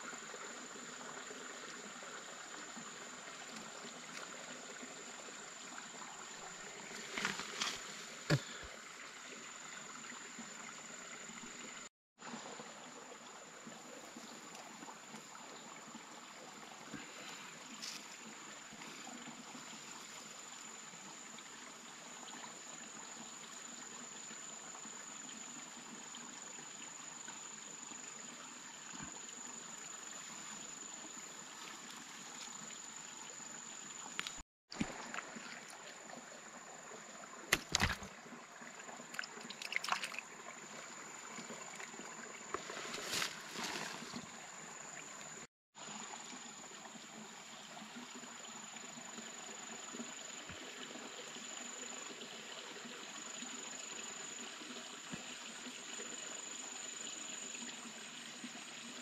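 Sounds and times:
water trickling: 0:00.0 - 0:59.0
short knocks or splashes: 0:37.5 - 0:38.1, 0:39.1 - 0:40.2.

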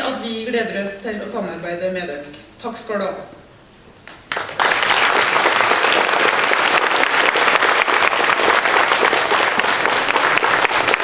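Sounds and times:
audience applauding: 0:04.0 - 0:11.0.

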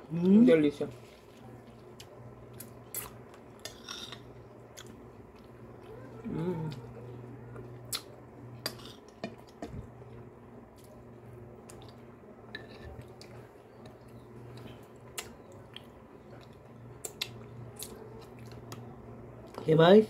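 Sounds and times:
soft eating sounds: 0:00.0 - 0:20.0
steady low hum: 0:00.0 - 0:20.0.

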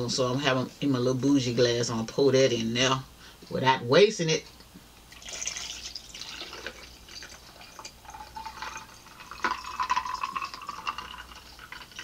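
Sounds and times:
water pouring over ice: 0:05.1 - 0:12.0.

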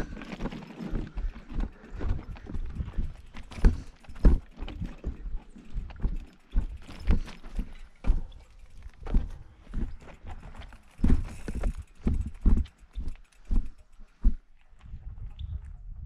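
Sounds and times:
bike rattling: 0:00.0 - 0:15.3
bike knocking over rocks: 0:03.0 - 0:13.8.

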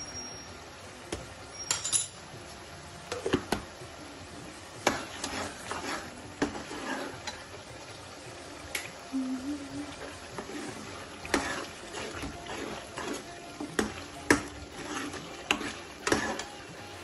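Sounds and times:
metal ladle clinking and scraping: 0:01.6 - 0:02.2, 0:04.8 - 0:07.5, 0:10.3 - 0:16.8.

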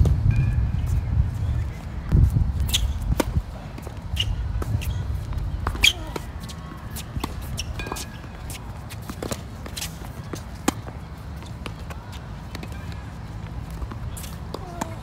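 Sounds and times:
steady low rumble: 0:00.0 - 0:07.4
shoe squeaks: 0:02.6 - 0:03.1, 0:04.0 - 0:09.2
racket hitting tennis ball: 0:02.6 - 0:12.9.

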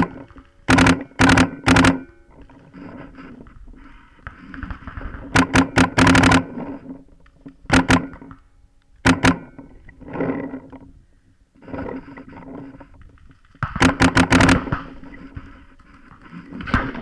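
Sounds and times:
paintball marker firing: 0:00.0 - 0:02.2, 0:04.2 - 0:06.6, 0:07.5 - 0:08.4, 0:09.0 - 0:09.8, 0:13.4 - 0:15.6.

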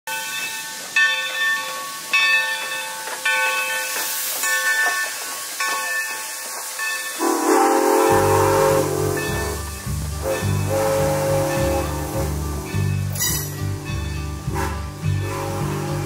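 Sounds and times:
locomotive bell ringing: 0:00.1 - 0:16.0
steam hissing: 0:00.1 - 0:16.0
music: 0:08.0 - 0:16.0.

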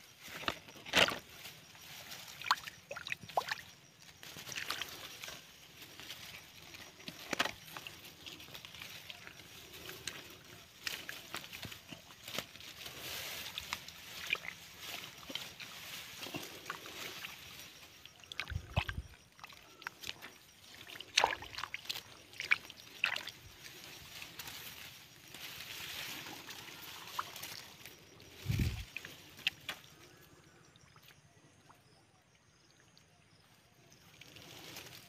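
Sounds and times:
hands splashing in muddy water: 0:18.2 - 0:23.4.

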